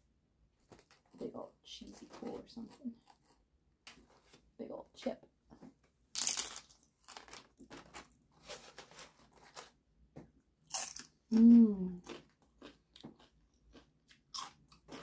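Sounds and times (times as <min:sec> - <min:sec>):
crunchy chip bites: 0:06.1 - 0:08.1, 0:10.7 - 0:11.2, 0:12.0 - 0:15.0.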